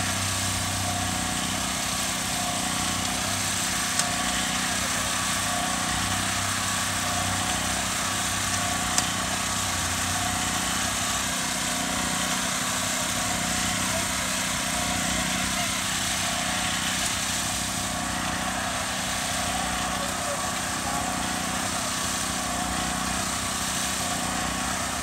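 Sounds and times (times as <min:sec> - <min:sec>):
small gasoline engine running: 0:00.0 - 0:25.0.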